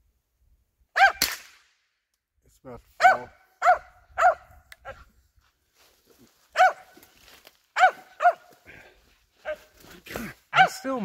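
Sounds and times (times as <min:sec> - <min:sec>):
dog barking: 0:01.0 - 0:01.2, 0:03.0 - 0:05.1, 0:06.5 - 0:07.0, 0:07.8 - 0:08.5, 0:10.5 - 0:10.9.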